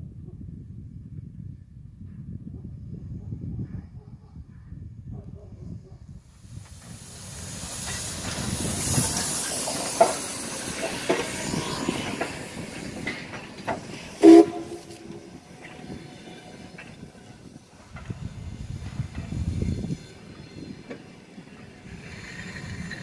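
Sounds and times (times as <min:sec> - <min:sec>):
steam locomotive hissing: 0:06.3 - 0:23.0
wheels clicking over rail joints: 0:06.6 - 0:23.0
locomotive whistle blast: 0:14.2 - 0:15.1.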